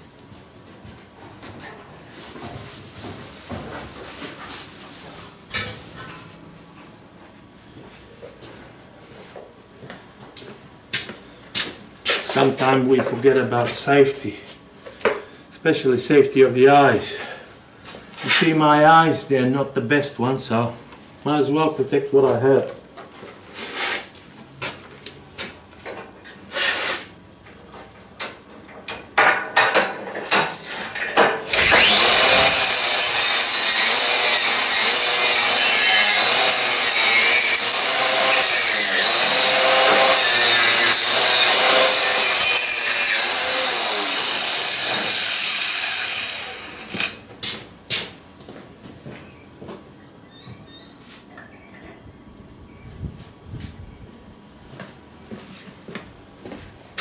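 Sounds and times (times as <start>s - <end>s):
clatter on a steel table: 28.8s - 31.4s
angle grinder on metal pipe: 31.5s - 47.2s.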